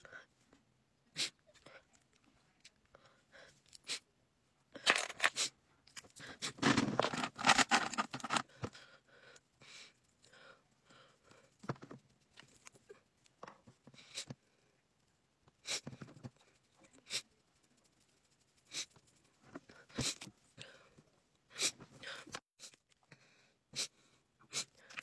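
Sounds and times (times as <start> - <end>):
scraping and rustling: 6.4 - 8.6.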